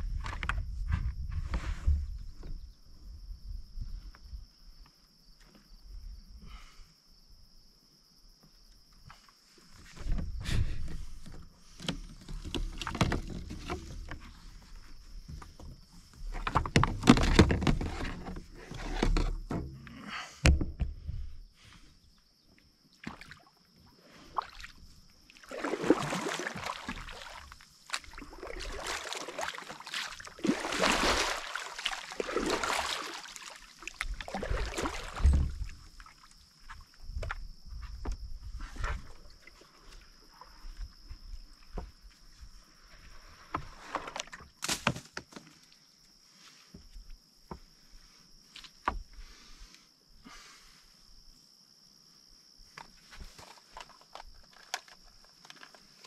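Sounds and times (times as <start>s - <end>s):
reeds scraping along board: 9.7s - 19.7s, 43.1s - 45.4s
water sloshing: 24.2s - 36.4s.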